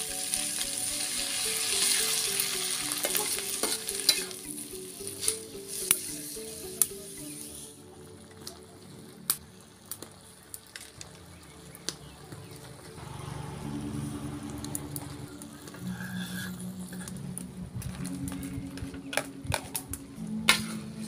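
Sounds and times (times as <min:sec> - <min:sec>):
stir-fry sizzling in a wok: 0:00.0 - 0:07.8
sharp pops and crackles: 0:09.3 - 0:13.0.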